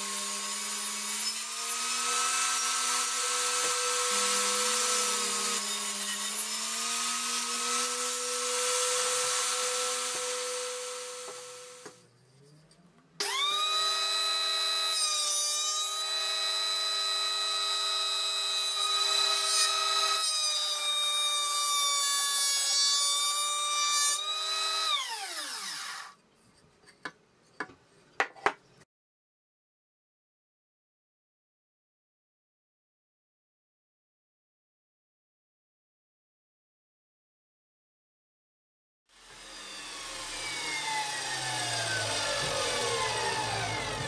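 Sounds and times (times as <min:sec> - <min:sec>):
electric saw cutting wood: 0:00.0 - 0:12.0, 0:13.2 - 0:26.2, 0:39.1 - 0:44.0.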